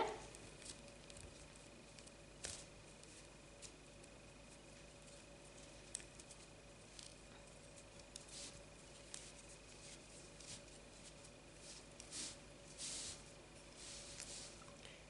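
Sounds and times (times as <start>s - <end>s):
low steady hum: 0.0s - 15.0s
soft handling swishes: 8.2s - 14.8s.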